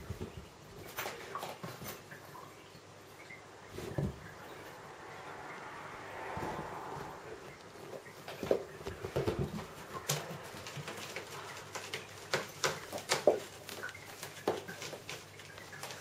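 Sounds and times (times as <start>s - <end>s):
kitten claws scratching and tapping: 8.2s - 16.0s.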